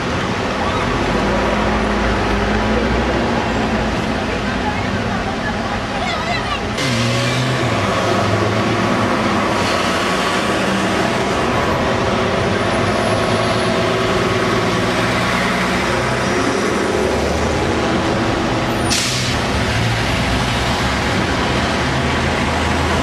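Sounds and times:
bus diesel engine passing: 0.0 - 23.0
street traffic: 0.0 - 23.0
bus air brakes hissing: 18.8 - 19.4.

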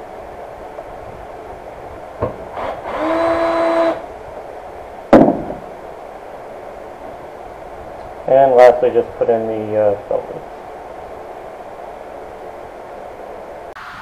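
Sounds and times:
cordless drill whining: 2.5 - 4.1.

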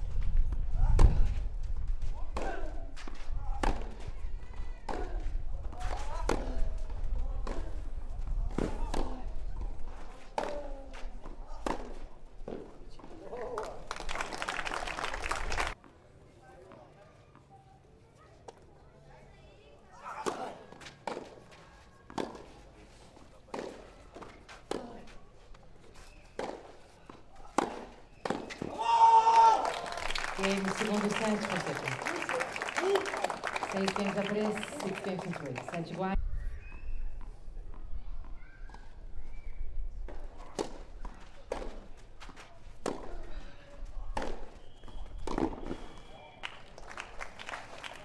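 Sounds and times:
tennis ball struck by rackets: 11.2 - 12.7, 26.3 - 26.7, 27.4 - 28.8, 42.8 - 43.3, 44.1 - 44.6, 45.2 - 46.0.

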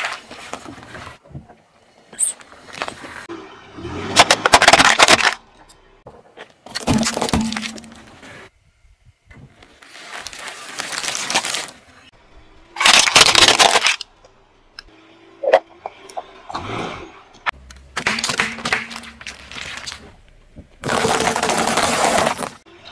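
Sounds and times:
tyre crushing plastic toys: 4.1 - 5.4, 6.4 - 8.2, 9.8 - 11.8, 12.8 - 14.1, 17.8 - 22.7
plastic crunching and cracking: 4.2 - 5.4, 9.8 - 11.8, 12.8 - 14.1, 20.7 - 22.6.

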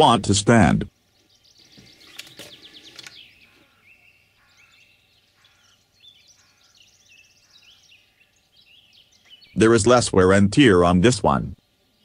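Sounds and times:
faint birdsong: 0.0 - 12.0
light clicks: 2.0 - 3.2.

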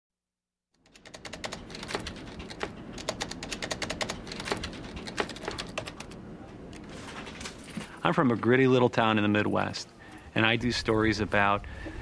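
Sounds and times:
typing on a keyboard: 0.8 - 6.2.

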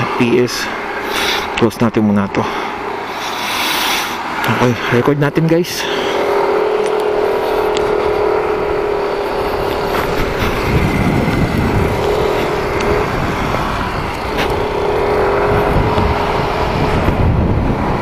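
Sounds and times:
motorcycle engine running: 4.2 - 18.0
wind rumble on microphone: 6.3 - 18.0.

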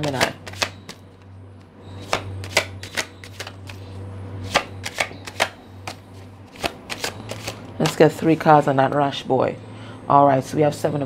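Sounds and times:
cards being shuffled: 0.0 - 1.0, 2.0 - 8.1
low steady hum: 0.0 - 11.0.

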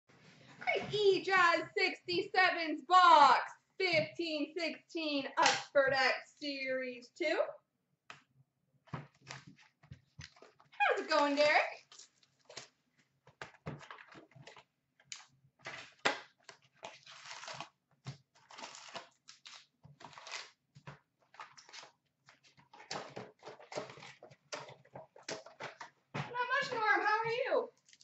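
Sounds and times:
cardboard and wrappers crinkling: 9.0 - 28.0.

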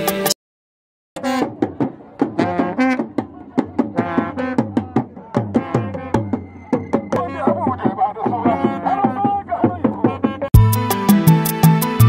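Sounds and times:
talking drum: 1.2 - 12.0.

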